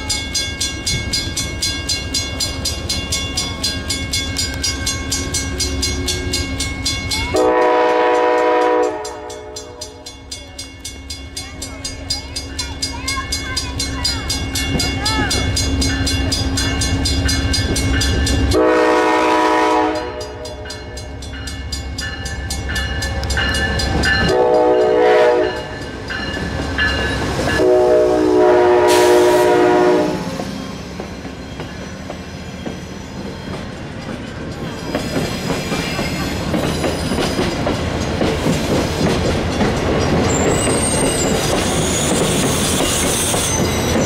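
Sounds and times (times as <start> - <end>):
diesel locomotive engine rumble: 0.0 - 44.0
train wheels clacking over rails: 0.0 - 44.0
train air horn blasts: 7.3 - 10.0, 18.5 - 20.6, 24.2 - 25.7, 27.6 - 30.4.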